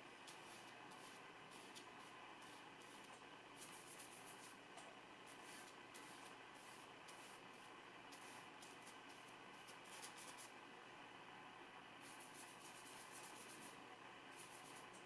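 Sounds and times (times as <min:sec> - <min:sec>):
low steady hum: 0:00.0 - 0:15.0
brush swishing on palette: 0:05.3 - 0:09.2.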